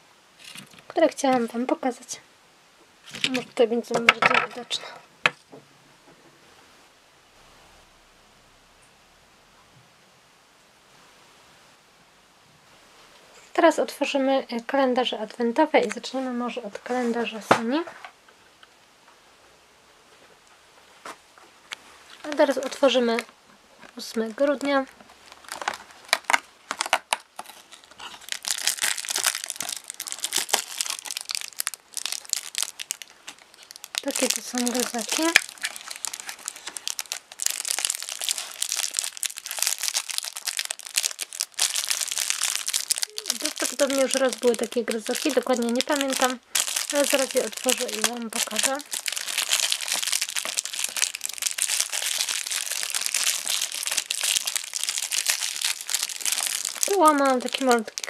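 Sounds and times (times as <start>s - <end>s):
packet crinkling and rustling: 0.4s - 1.5s, 3.0s - 4.8s, 21.7s - 58.0s.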